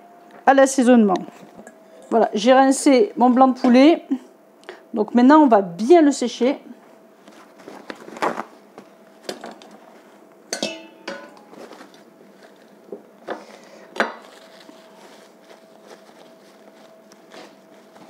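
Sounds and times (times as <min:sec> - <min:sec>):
bowl and plate clinking on table: 0:10.5 - 0:11.4.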